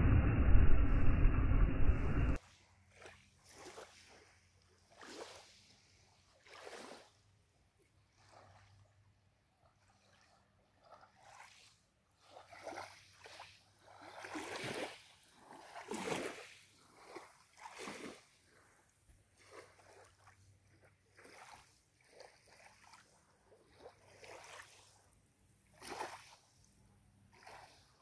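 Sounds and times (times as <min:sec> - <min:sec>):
small waves lapping: 0:02.4 - 0:28.0.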